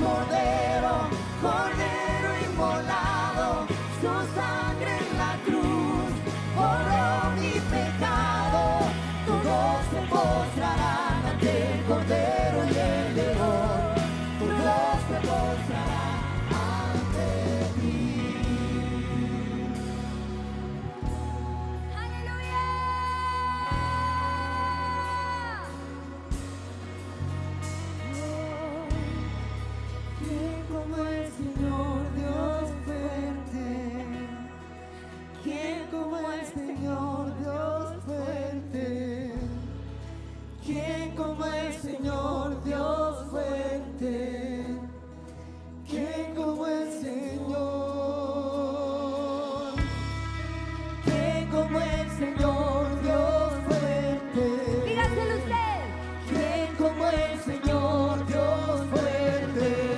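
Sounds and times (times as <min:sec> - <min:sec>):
sustained low chords: 0:00.0 - 0:21.8
person singing: 0:00.0 - 0:26.1, 0:45.9 - 0:59.9
drums: 0:00.0 - 0:35.7, 0:36.3 - 0:59.9
worship band playing: 0:00.0 - 0:59.9.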